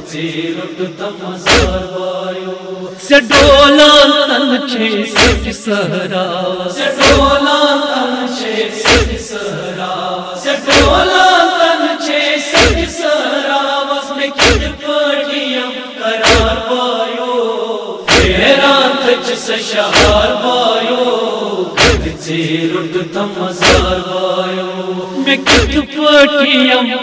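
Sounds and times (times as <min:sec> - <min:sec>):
man chanting through microphone: 0:00.0 - 0:27.0
chest-beating thuds: 0:01.4 - 0:01.9, 0:05.2 - 0:05.5, 0:07.0 - 0:07.3, 0:08.8 - 0:09.2, 0:10.7 - 0:11.0, 0:12.6 - 0:12.9, 0:14.4 - 0:14.8, 0:16.2 - 0:16.6, 0:18.1 - 0:18.4, 0:19.9 - 0:20.3, 0:21.8 - 0:22.2, 0:23.6 - 0:24.0, 0:25.4 - 0:25.8.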